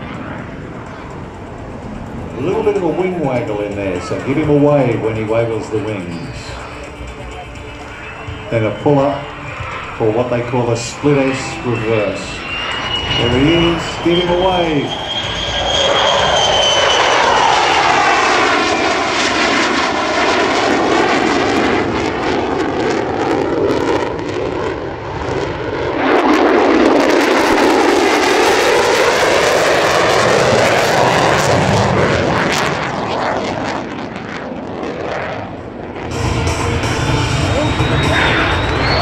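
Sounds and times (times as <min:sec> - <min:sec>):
jet aircraft flying past: 0:00.0 - 0:39.0.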